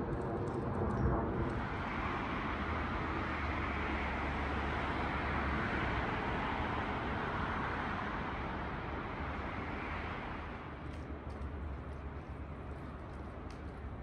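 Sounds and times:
distant traffic hiss and rumble: 0.0 - 14.0.

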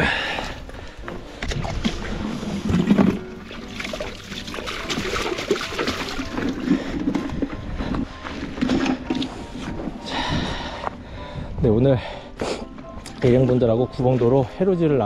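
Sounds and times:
water sloshing and splashing: 0.3 - 10.3, 13.1 - 15.0.

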